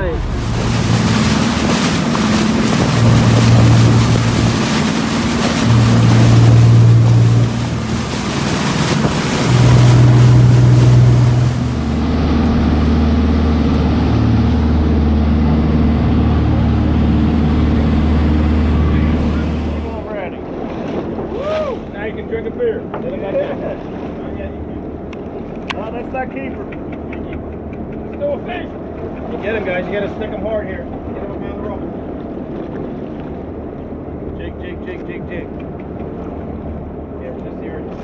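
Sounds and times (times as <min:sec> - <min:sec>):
wind on microphone: 0:00.0 - 0:19.8
boat engine drone: 0:00.0 - 0:38.0
boat wake rushing and splashing: 0:00.0 - 0:38.0.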